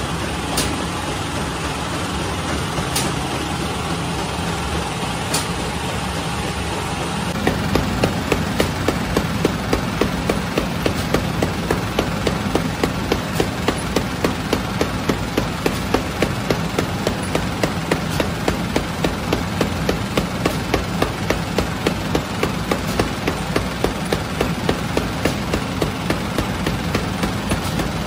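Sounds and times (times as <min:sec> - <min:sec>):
conveyor oven machinery humming: 0:00.0 - 0:28.0
rapid machine clicking: 0:07.3 - 0:28.0.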